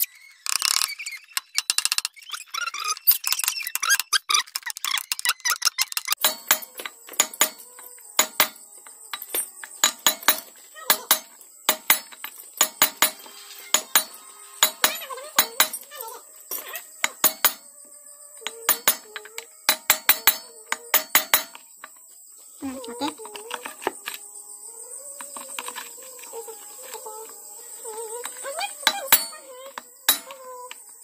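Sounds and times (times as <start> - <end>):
hammer striking steel rod: 6.2 - 7.6, 8.2 - 8.6, 9.2 - 15.8, 17.0 - 17.6, 18.7 - 19.1, 19.7 - 21.6, 30.1 - 30.4.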